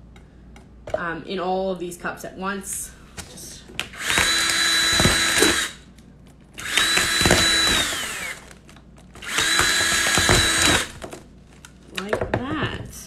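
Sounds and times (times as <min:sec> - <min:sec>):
cordless drill motor whine: 0:04.0 - 0:05.8, 0:06.6 - 0:08.5, 0:09.2 - 0:11.0.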